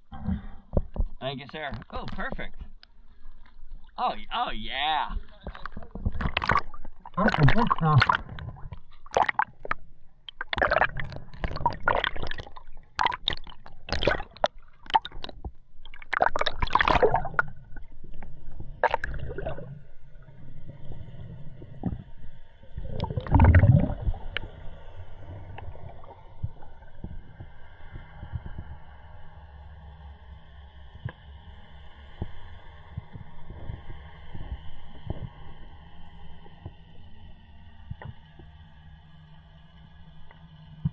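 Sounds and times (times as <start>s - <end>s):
water splashing and gurgling: 5.1s - 29.0s
humming with high whining tones: 17.0s - 40.9s.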